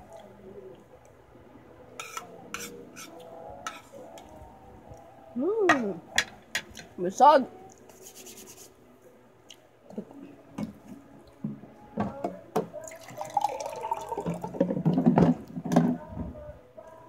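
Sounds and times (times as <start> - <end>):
water pouring into a glass: 12.8 - 14.7.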